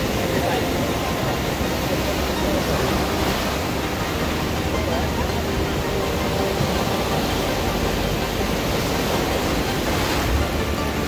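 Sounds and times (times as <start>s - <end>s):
ocean surf rushing: 0.0s - 11.0s.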